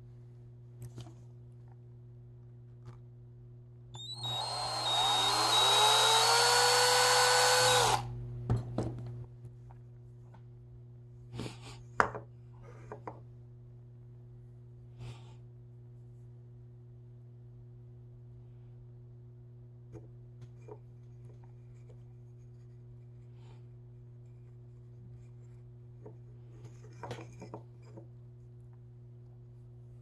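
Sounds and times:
small electric motor spinning up: 4.0 - 8.1.

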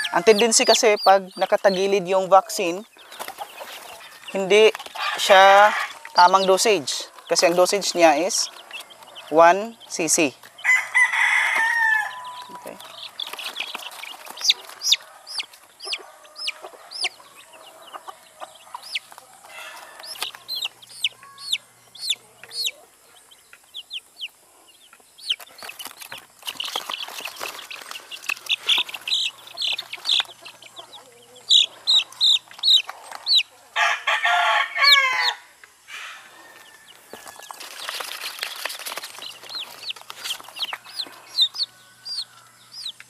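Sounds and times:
chicken calling: 0.0 - 43.0
chicks peeping: 0.0 - 43.0.

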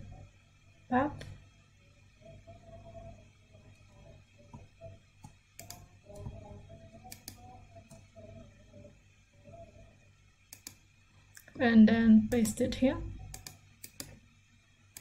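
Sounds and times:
computer mouse clicks: 5.2 - 5.9, 7.0 - 8.1, 10.5 - 10.8, 13.3 - 14.2.

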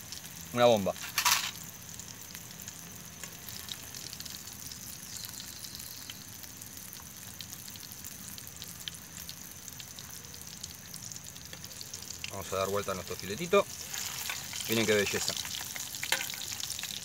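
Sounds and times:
fish frying sizzle: 0.0 - 17.0
oil spattering crackles: 0.0 - 17.0.

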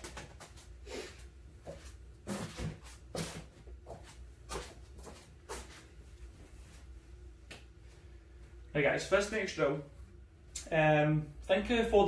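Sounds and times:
soft footsteps on foam mats: 0.0 - 8.6
low steady hum: 0.0 - 12.0.

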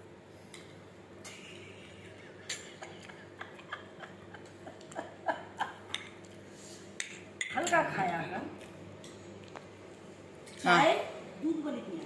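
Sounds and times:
woman laughing: 1.3 - 5.9.

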